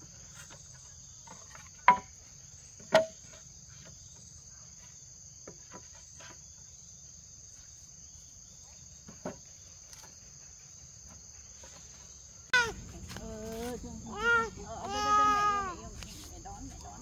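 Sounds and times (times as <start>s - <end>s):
insects droning: 0.0s - 17.0s
bamboo poles knocking on wood: 1.2s - 2.2s, 2.8s - 3.4s.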